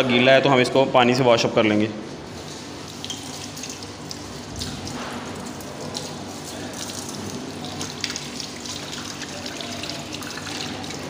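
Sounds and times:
tap water splashing into sink: 0:02.9 - 0:11.0.

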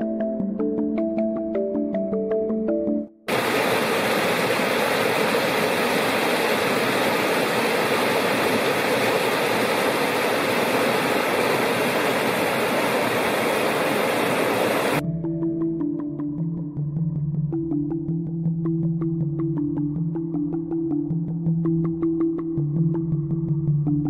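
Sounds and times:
stream rushing over rocks: 0:03.3 - 0:15.0.

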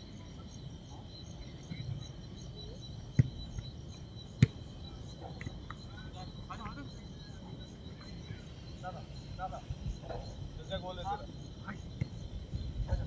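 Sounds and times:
insects chirring: 0:00.0 - 0:13.0
football kick thuds: 0:03.1 - 0:03.7, 0:04.4 - 0:04.6.

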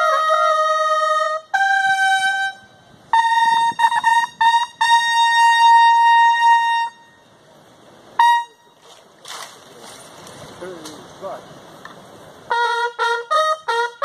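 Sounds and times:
bugle call: 0:00.0 - 0:07.3, 0:08.2 - 0:09.0, 0:12.5 - 0:14.0.

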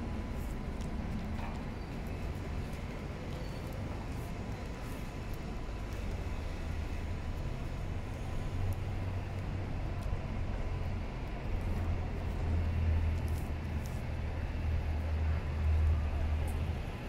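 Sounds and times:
city traffic rumble: 0:00.0 - 0:17.0.

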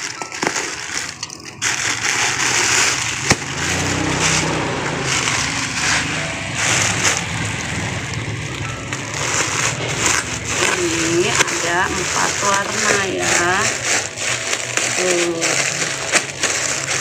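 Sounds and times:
scissors cutting plastic: 0:00.0 - 0:04.5, 0:08.9 - 0:17.0
plastic rustling and crinkling: 0:00.0 - 0:17.0
low hum: 0:02.0 - 0:16.8.

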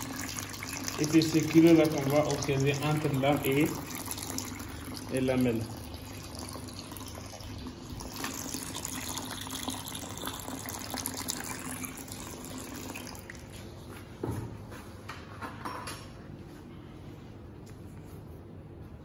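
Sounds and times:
tap water running into sink: 0:00.0 - 0:13.5.

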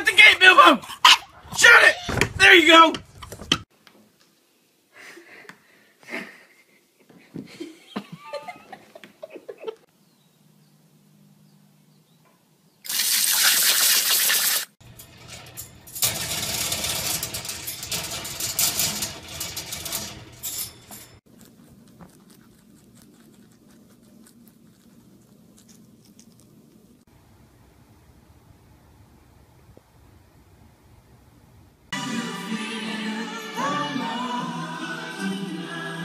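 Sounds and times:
hose nozzle spraying water: 0:12.9 - 0:14.8
animal rattling wire cage: 0:14.8 - 0:21.2.

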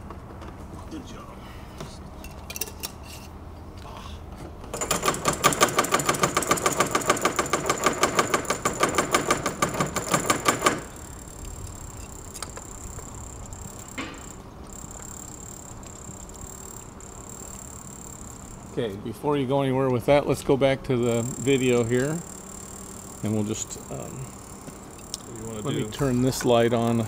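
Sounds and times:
rapid rhythmic mechanical clatter: 0:04.7 - 0:18.8, 0:21.0 - 0:26.3.

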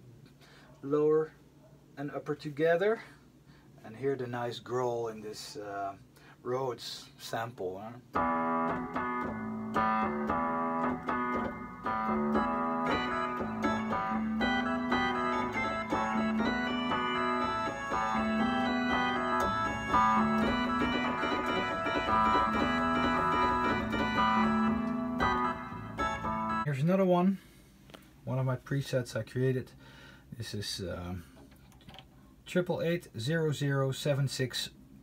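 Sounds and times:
electric piano bass notes: 0:08.1 - 0:26.7
organ chords: 0:08.1 - 0:26.8.

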